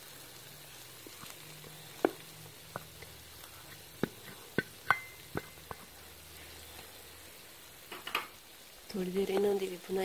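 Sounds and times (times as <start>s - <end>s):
faint sizzle: 0.0s - 10.0s
wooden spoon knocking on metal pan: 4.0s - 5.9s.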